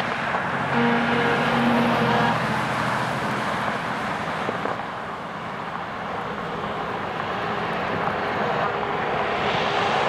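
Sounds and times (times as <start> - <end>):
fire engine approaching: 0.0 - 10.0.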